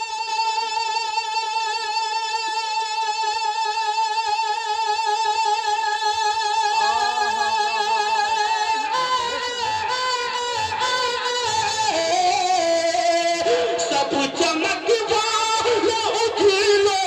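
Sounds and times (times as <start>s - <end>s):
man singing long high note: 6.4s - 17.0s.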